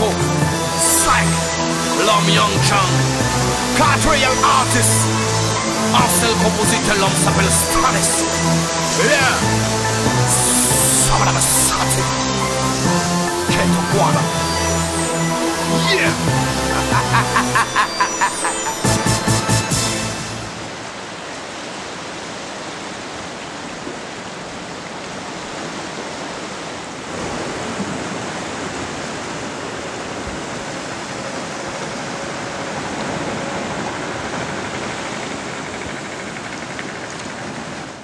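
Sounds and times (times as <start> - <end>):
surf washing against rocky shore: 20.6 - 38.0.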